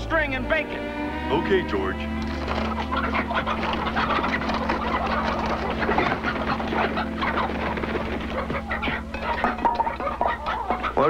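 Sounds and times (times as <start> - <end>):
chickens squawking and clucking: 0.7 - 11.0.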